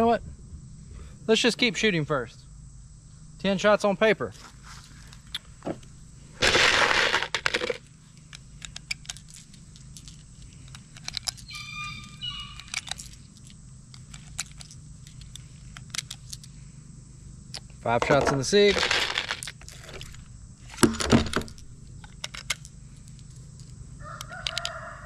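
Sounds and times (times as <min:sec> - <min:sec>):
loud rustling burst: 0:06.4 - 0:07.8
high chirping tone: 0:11.3 - 0:13.3
metallic cartridge clicks: 0:20.8 - 0:24.8.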